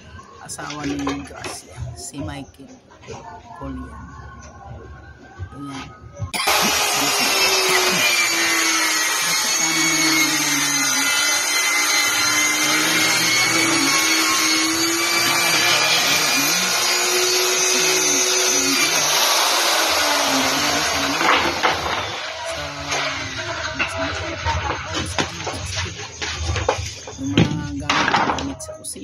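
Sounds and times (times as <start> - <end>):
electric power tool running: 6.4 - 28.5.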